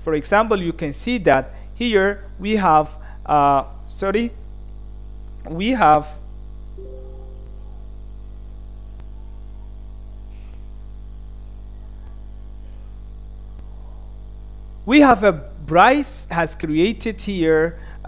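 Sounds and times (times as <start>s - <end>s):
electrical hum: 2.4s - 9.4s.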